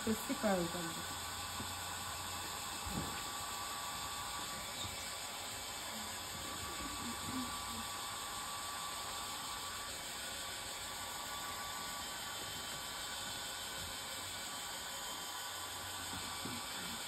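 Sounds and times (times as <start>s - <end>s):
hair dryer blowing: 0.0s - 17.0s.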